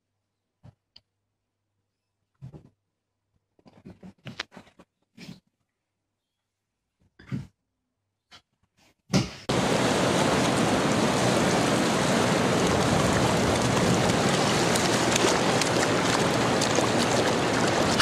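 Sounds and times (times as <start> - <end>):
ocean surf breaking: 9.5 - 18.0.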